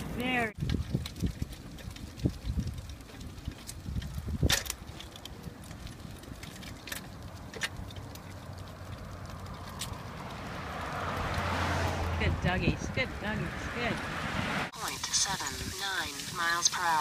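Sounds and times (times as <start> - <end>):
car tyre noise: 0.0 - 14.7
tricycle rumbling on concrete: 0.0 - 17.0.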